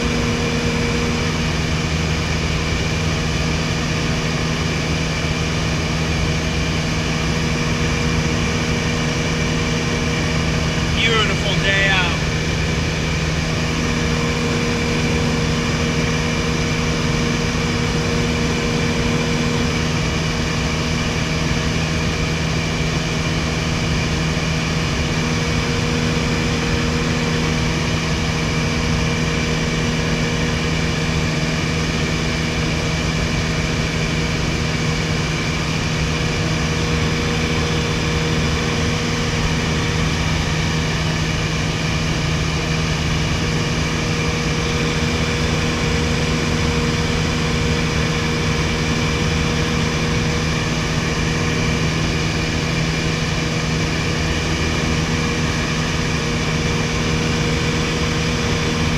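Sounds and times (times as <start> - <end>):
propeller engine humming: 0.0 - 58.9.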